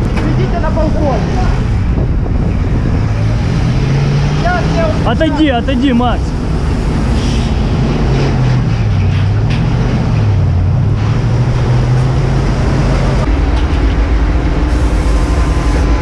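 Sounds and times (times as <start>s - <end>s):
hydraulic ladder engine hum: 6.7s - 16.0s.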